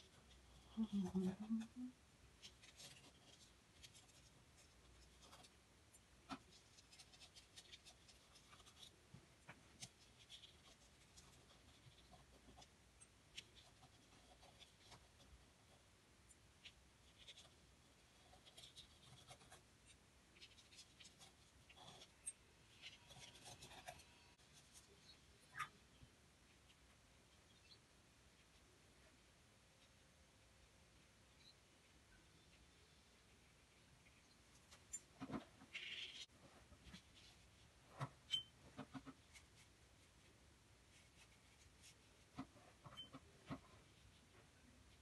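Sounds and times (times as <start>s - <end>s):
brush scratching on paper: 6.3s - 9.0s, 9.8s - 12.7s, 17.0s - 19.6s, 40.9s - 44.3s.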